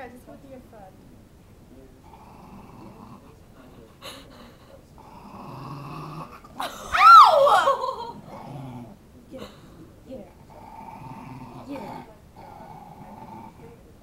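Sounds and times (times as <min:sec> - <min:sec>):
small dog growling: 0:02.0 - 0:03.9, 0:04.9 - 0:14.0
dog high-pitched cry: 0:06.9 - 0:07.9.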